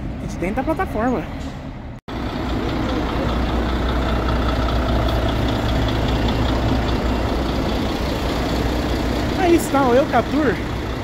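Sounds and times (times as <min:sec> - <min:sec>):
diesel engine idling: 0:02.1 - 0:11.0.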